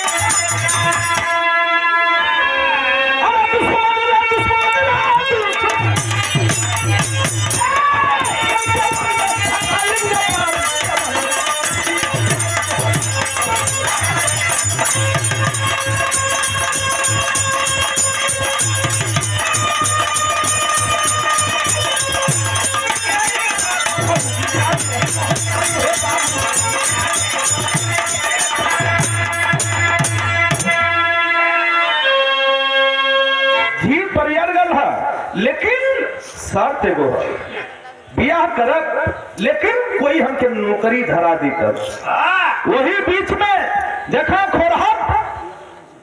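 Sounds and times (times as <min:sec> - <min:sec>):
fast rattling percussion: 0:00.0 - 0:01.4, 0:04.6 - 0:30.9
pulsing drum beat: 0:05.1 - 0:30.8.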